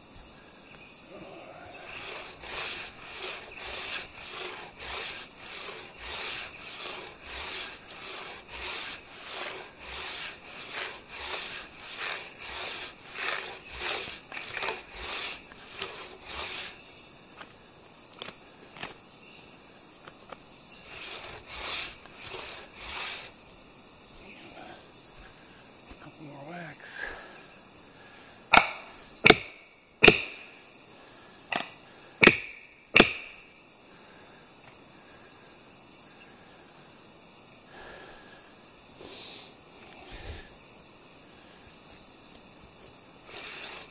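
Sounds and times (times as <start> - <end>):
hand saw cutting log: 1.6 - 16.8, 20.8 - 23.4, 28.6 - 30.4, 32.2 - 33.4, 43.2 - 43.9.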